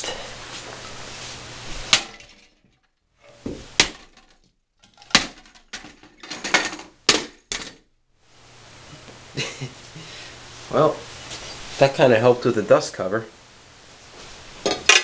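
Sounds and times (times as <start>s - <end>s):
bat smashing plastic turntable: 1.9s - 2.7s, 3.3s - 7.9s, 14.6s - 15.0s
platter clattering: 1.9s - 7.8s, 14.6s - 15.0s.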